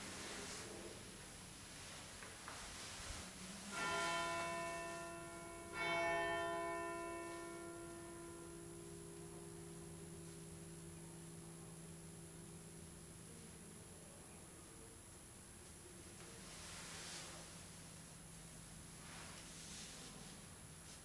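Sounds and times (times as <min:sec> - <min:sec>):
bell ringing: 0:03.7 - 0:08.7.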